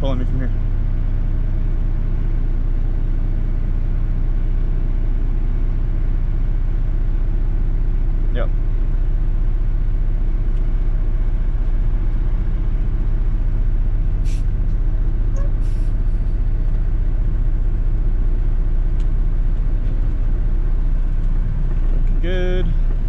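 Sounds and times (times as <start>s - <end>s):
diesel engine running: 0.0s - 23.0s
air hisses: 14.2s - 14.5s, 15.6s - 16.2s.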